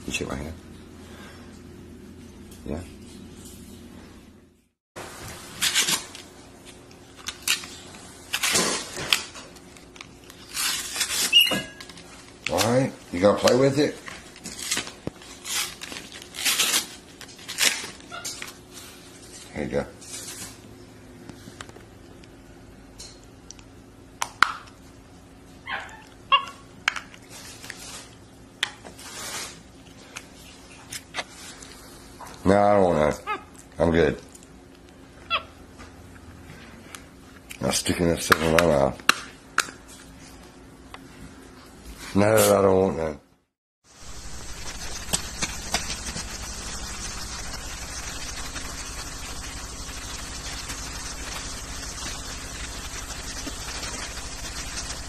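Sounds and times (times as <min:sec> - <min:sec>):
monkey squeaky calls: 0:11.3 - 0:11.7
crinkly packaging rustling: 0:13.5 - 0:20.6.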